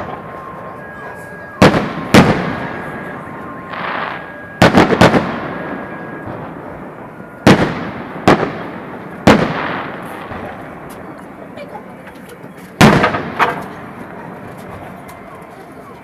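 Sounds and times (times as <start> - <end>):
firework shells booming: 1.6 - 10.9, 12.8 - 14.0.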